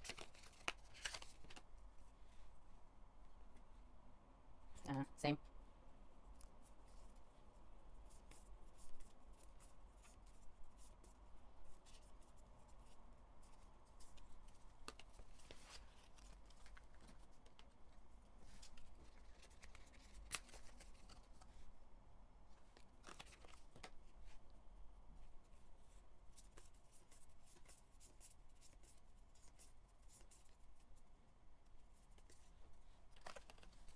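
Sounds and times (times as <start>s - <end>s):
cards clicking and rustling: 0.0s - 1.7s, 14.0s - 17.8s, 18.5s - 21.5s, 22.6s - 24.2s, 32.1s - 33.9s.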